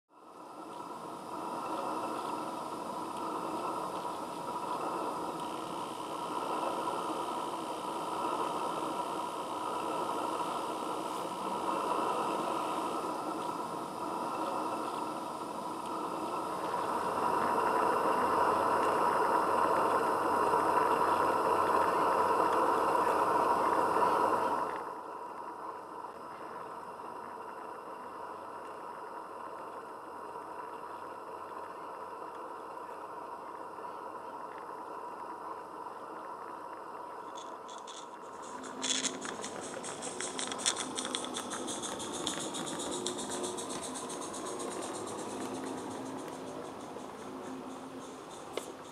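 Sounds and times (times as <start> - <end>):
steam locomotive hissing: 0.9 - 21.4, 37.8 - 48.9.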